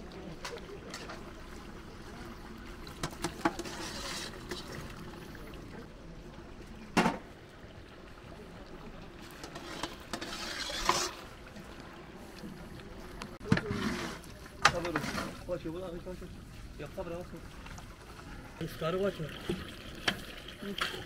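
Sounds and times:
water pouring: 0.0 - 12.0, 13.4 - 21.0.

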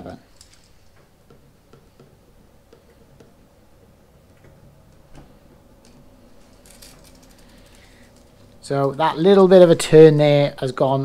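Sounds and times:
tools clicking and tapping: 0.4 - 3.4.

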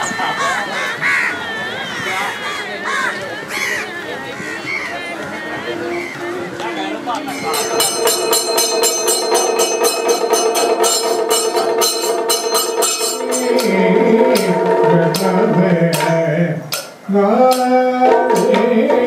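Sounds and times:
rapid percussion strokes: 7.4 - 19.0
steady drone: 7.5 - 16.7
low voice singing: 13.0 - 19.0.

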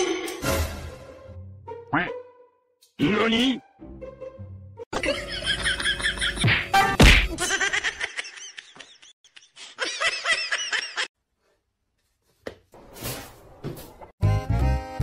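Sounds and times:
person laughing hard: 7.3 - 11.1.

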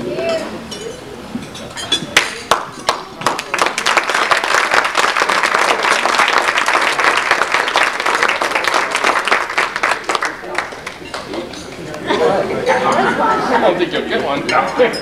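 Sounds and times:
crowd applauding: 2.2 - 11.9.

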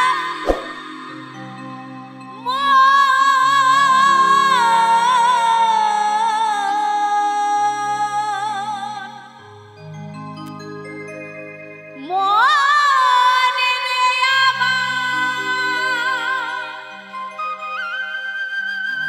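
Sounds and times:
woman singing with vibrato: 0.0 - 9.4, 12.0 - 17.2.

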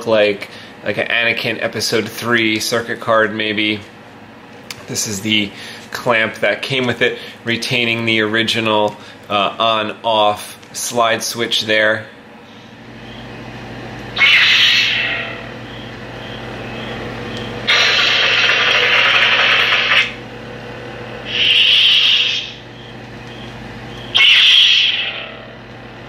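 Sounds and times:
lightsaber low hum: 12.8 - 26.0
lightsaber ignition: 14.2 - 15.5, 17.6 - 20.2, 21.3 - 22.6, 24.1 - 25.4
lightsaber swelling effects: 14.2 - 15.9, 17.6 - 20.2, 21.2 - 22.6, 24.1 - 25.6.

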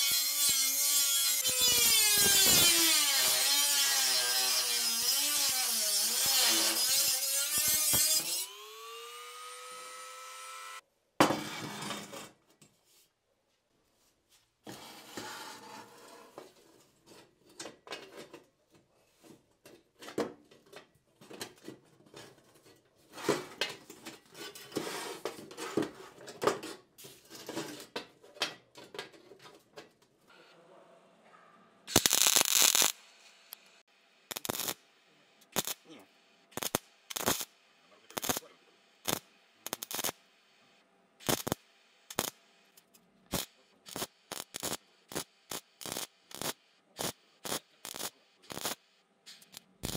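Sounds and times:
rotary tool grinding metal: 0.0 - 10.8.

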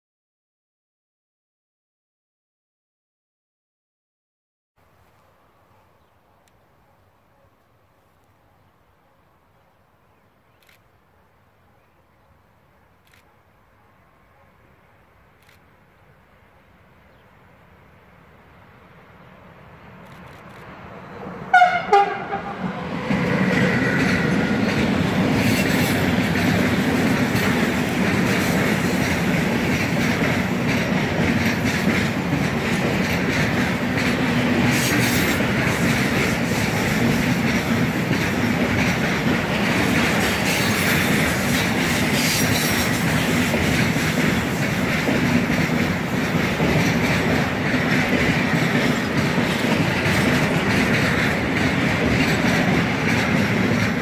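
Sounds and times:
freight train wheels rumbling: 18.0 - 54.0
locomotive horn blast: 21.5 - 22.8.

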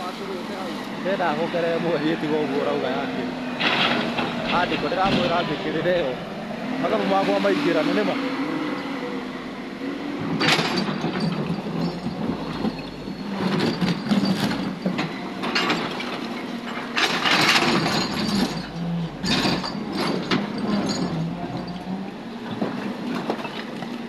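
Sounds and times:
excavator diesel engine running: 0.0 - 24.0
bucket scraping stone and rubble: 10.6 - 22.0.

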